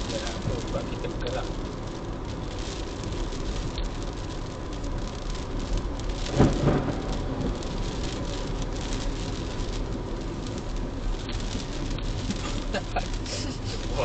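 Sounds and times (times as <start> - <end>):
rain on car roof: 0.0 - 14.0
thunderclap: 6.2 - 10.0.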